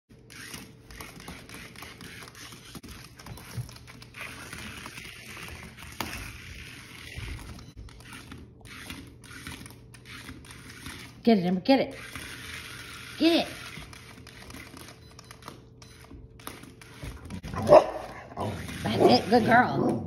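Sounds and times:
toy car motor whirring: 0.3 - 11.2, 11.9 - 17.4, 18.4 - 19.6.

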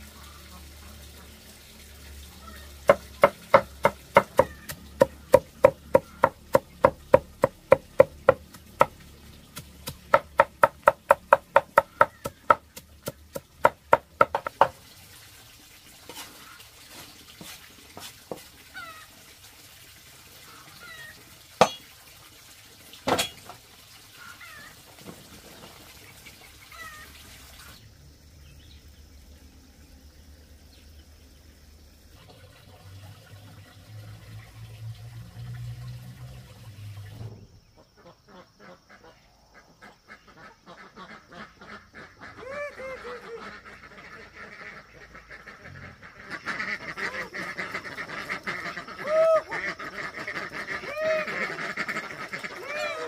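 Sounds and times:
steady rhythmic knocking: 2.9 - 9.0, 9.8 - 14.8.

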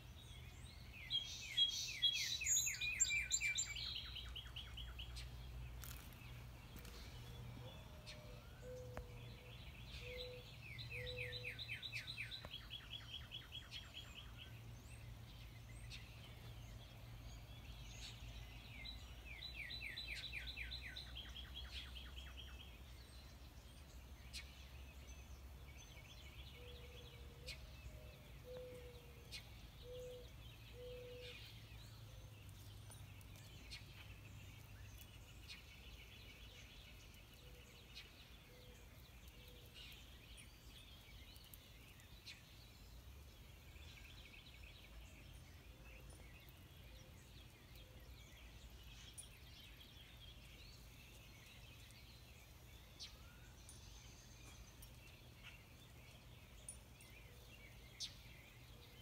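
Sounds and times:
trilled birdsong: 0.0 - 59.0
low hooting bird call: 7.6 - 11.6.

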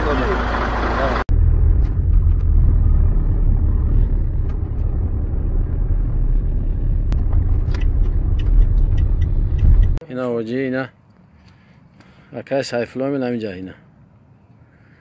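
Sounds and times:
vehicle rumble: 0.0 - 10.0.

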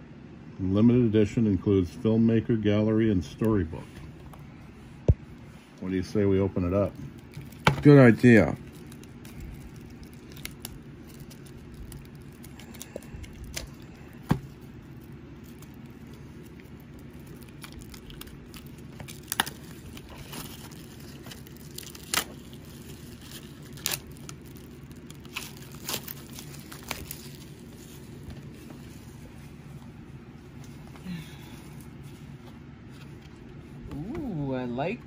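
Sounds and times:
low hum: 0.0 - 35.0
plastic wrap tearing and crinkling: 6.6 - 29.1.

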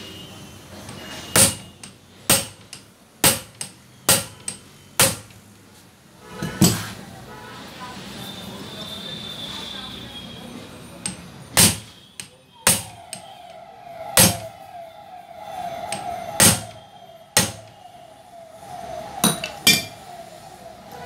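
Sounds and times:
wavering whine: 12.5 - 21.0.

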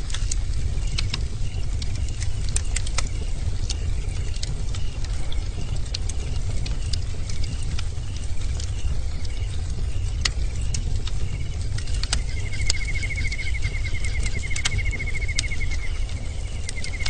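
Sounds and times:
bonfire roaring and crackling: 0.0 - 17.0
faint high chirp: 12.1 - 17.0.

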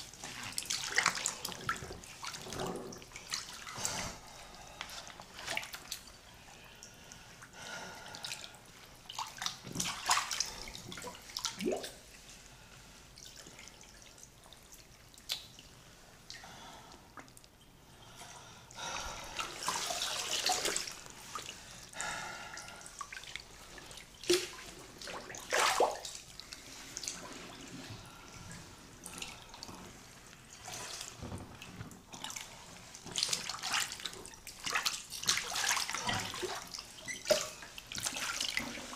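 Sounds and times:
bathwater splashing: 0.0 - 6.2, 9.1 - 12.4, 18.8 - 21.7, 22.6 - 38.9.

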